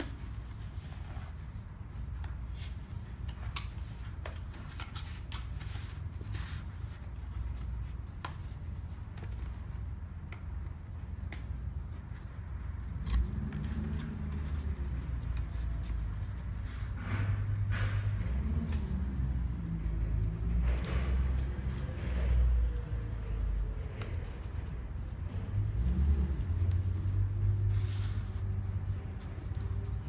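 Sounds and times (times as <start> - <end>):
cardboard box being folded: 0.0 - 9.9, 26.2 - 30.0
low room hum: 0.0 - 30.0.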